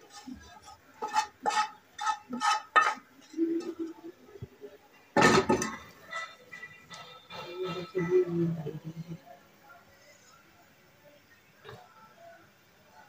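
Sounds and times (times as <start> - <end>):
pan clattering down: 1.0 - 3.0, 5.2 - 6.6.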